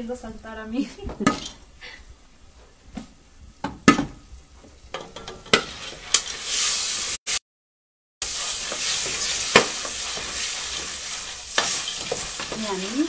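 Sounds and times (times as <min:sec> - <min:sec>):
loud frying sizzle: 0:02.5 - 0:07.4, 0:08.2 - 0:13.0
corn kernels popping: 0:08.2 - 0:13.0.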